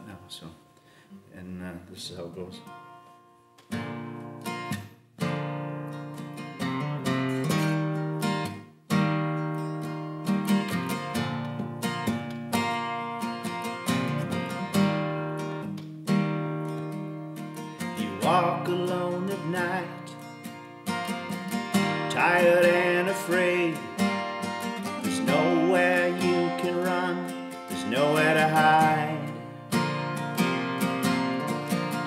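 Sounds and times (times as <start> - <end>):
acoustic guitar strumming chords: 2.6 - 32.0
person singing: 17.8 - 20.2, 21.8 - 29.6.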